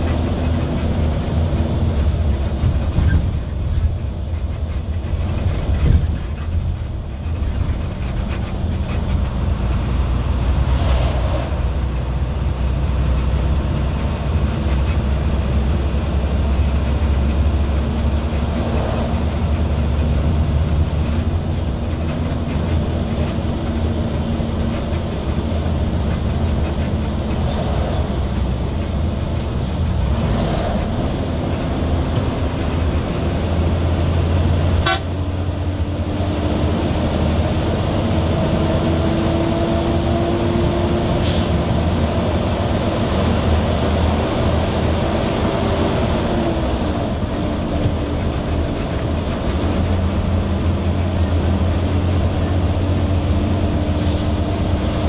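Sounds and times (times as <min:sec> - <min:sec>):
vehicle engine and road rumble: 0:00.0 - 0:55.0.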